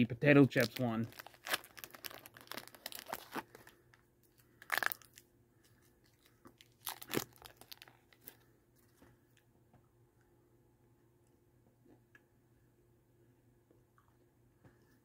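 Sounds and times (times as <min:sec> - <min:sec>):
wrapper crinkling and rustling: 0:00.4 - 0:03.9, 0:04.6 - 0:05.2, 0:06.0 - 0:08.4.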